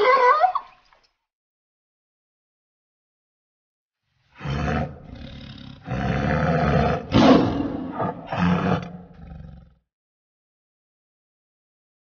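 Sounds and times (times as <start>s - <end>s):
tiger roaring: 4.4s - 9.8s.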